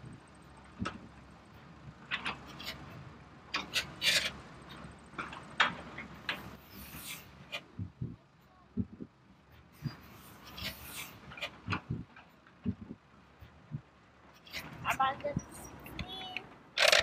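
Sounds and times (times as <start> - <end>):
toy crane plastic clicks and knocks: 15.9 - 17.0.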